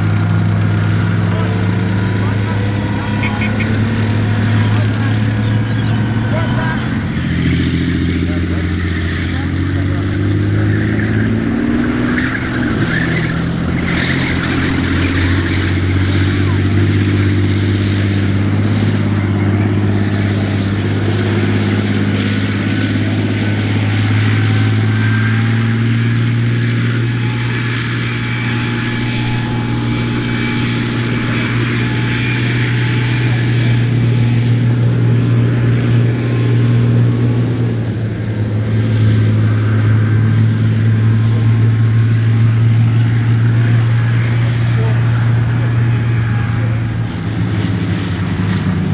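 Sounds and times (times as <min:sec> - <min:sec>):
thin high whine: 0:00.0 - 0:37.7
tank diesel engine droning: 0:00.0 - 0:48.9.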